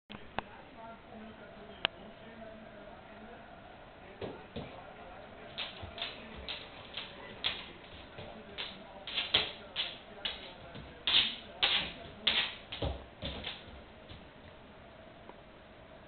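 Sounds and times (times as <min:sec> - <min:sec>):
dog claws tapping on floor: 0:05.5 - 0:14.3.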